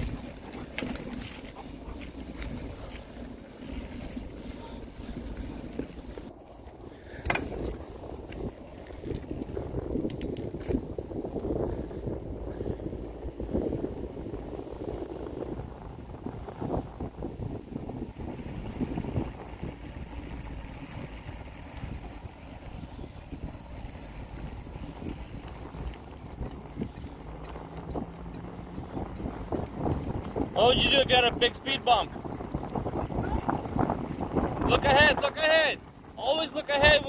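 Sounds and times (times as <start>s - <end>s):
bike tyre rumble on pavement: 0.0s - 37.0s
bike knocks and rattles: 7.1s - 11.1s.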